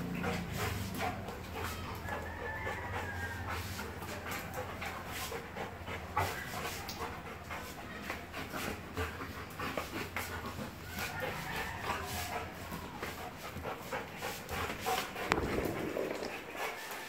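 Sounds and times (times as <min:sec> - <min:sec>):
dog panting: 0:00.0 - 0:17.0.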